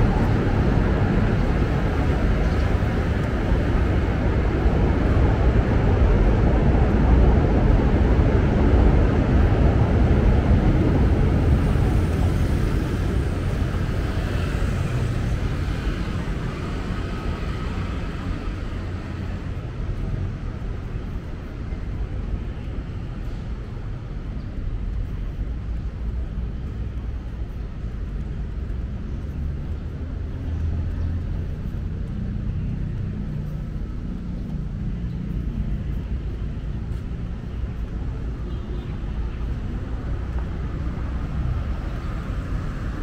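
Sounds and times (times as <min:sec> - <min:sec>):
passing vehicle engines rumbling: 0:00.0 - 0:43.0.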